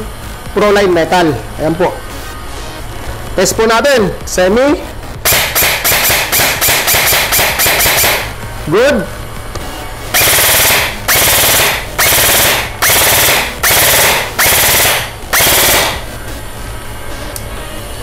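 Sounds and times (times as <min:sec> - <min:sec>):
airsoft rifle rapid fire bursts: 0:05.2 - 0:08.3, 0:10.2 - 0:16.1.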